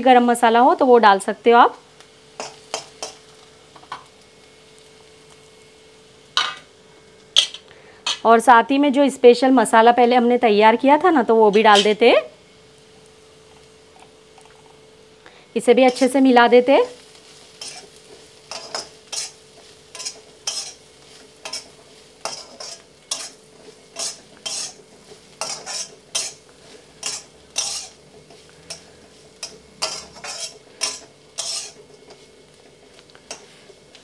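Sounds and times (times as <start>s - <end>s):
metal spatula scraping wok: 17.2s - 32.3s.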